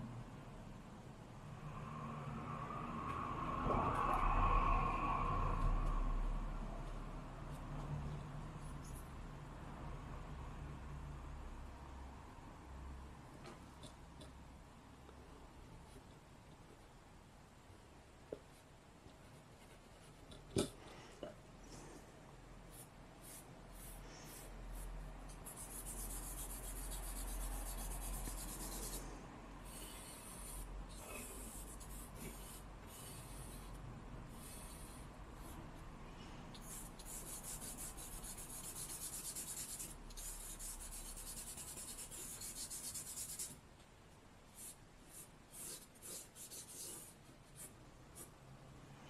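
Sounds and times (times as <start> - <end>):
charcoal scratching on paper: 22.7 - 35.9, 36.5 - 43.6, 44.5 - 48.4.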